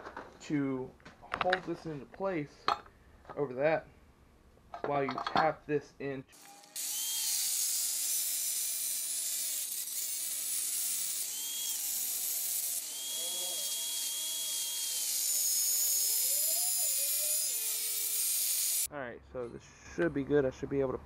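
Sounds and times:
angle grinder cutting pipe: 6.4 - 18.9.

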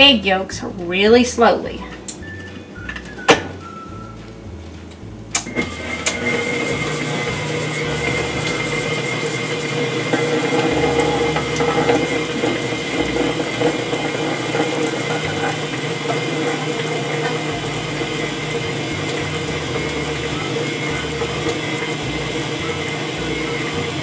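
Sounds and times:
mixer motor running: 5.3 - 24.0
stand mixer switch click: 5.4 - 6.2.

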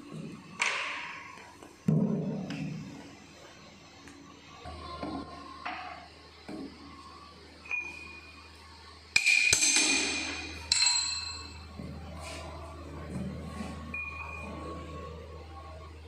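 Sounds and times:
steel tools clinking: 9.2 - 11.6
loud ringing metal clang: 9.2 - 11.7.

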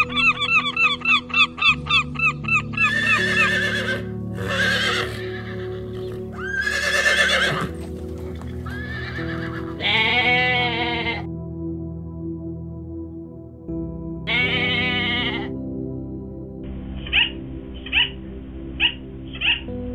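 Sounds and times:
background music: 0.0 - 19.9
horse whinnying: 2.8 - 11.2
goat bleating: 8.7 - 11.3, 14.3 - 15.5.

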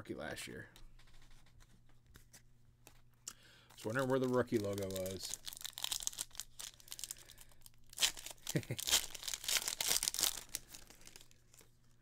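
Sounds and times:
foil wrapper tearing and crinkling: 3.7 - 11.8.

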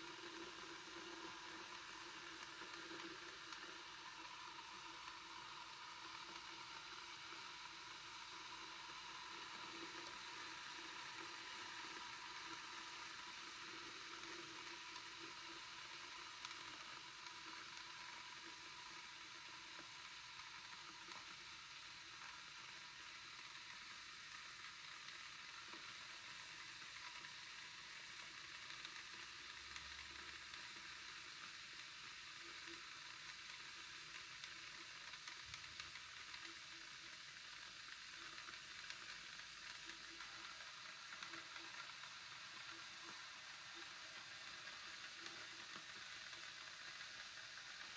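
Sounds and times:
kettle sizzling hiss: 0.0 - 47.9.

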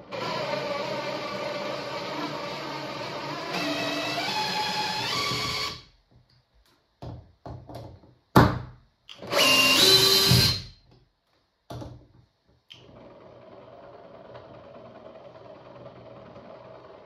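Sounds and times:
cordless drill motor whining: 0.1 - 5.9, 9.1 - 10.7.

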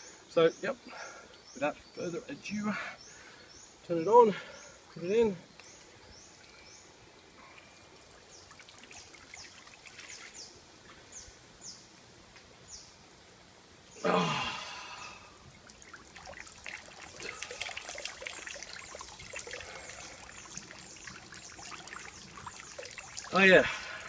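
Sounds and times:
man exclaiming: 14.0 - 14.9
shower water splashing: 15.6 - 24.0
bird chirping: 17.0 - 24.0.

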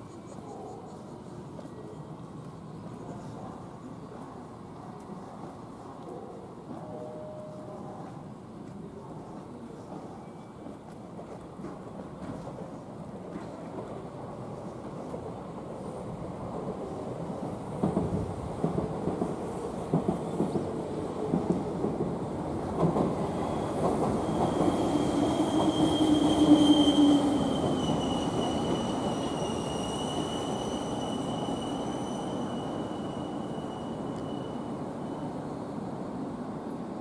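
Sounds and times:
train rumble: 0.9 - 36.1
high wheel squeal: 24.2 - 35.4.

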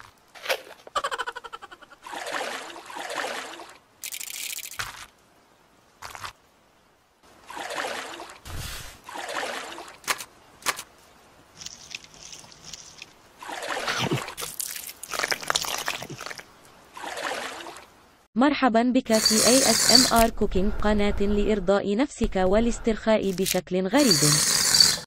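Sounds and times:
muddy water sloshing and splashing: 1.9 - 4.8, 7.2 - 10.8, 11.6 - 17.9.

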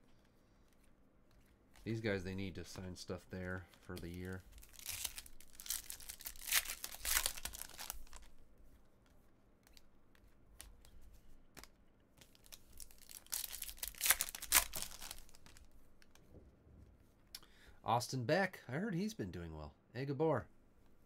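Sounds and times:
cards clicking and rustling: 0.2 - 8.3, 9.0 - 16.3
foil wrappers tearing and crinkling: 3.9 - 8.3, 12.3 - 15.6.

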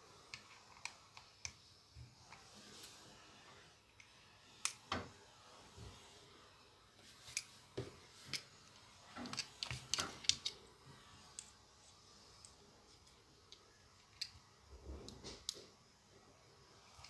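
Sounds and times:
plastic and metal parts clicking: 9.2 - 10.6.

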